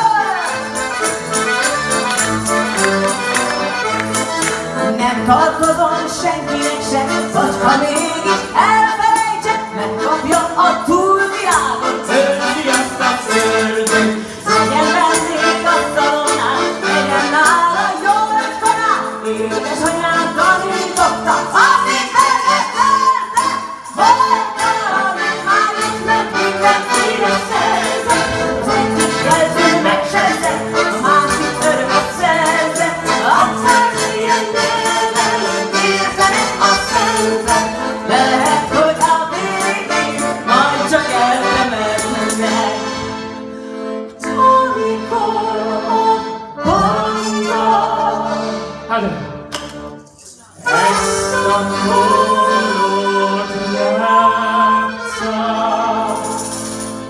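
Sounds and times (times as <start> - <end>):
tambourine shaking: 0.0 - 4.7, 5.5 - 42.9, 50.0 - 52.9, 56.0 - 57.0
accordion dance tune: 0.0 - 57.0
maraca shaking: 11.3 - 42.8, 50.0 - 52.7, 56.1 - 57.0.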